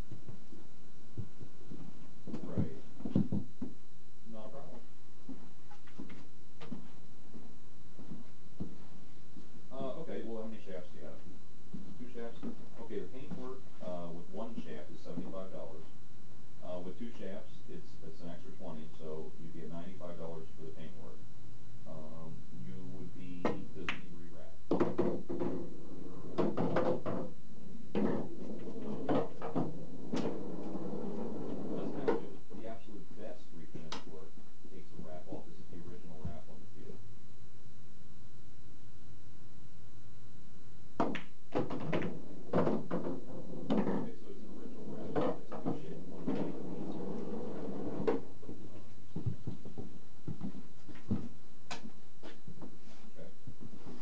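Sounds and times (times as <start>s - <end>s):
steady background noise: 0.0s - 54.0s
pool balls knocking: 24.7s - 27.3s, 27.9s - 32.2s, 41.0s - 44.1s, 44.8s - 51.9s
pool balls clicking: 41.0s - 44.0s.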